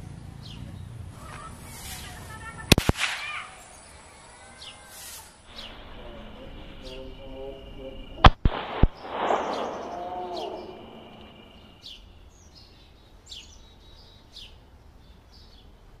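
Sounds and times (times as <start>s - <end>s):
birds chirping: 0.0s - 15.8s
balloon bursting snaps: 2.7s - 3.4s, 8.2s - 10.8s.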